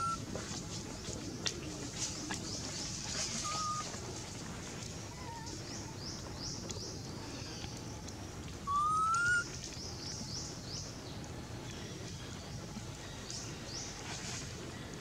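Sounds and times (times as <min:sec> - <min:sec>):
birds chirping: 0:00.9 - 0:04.0
rising whistle-like bird call: 0:08.7 - 0:09.5.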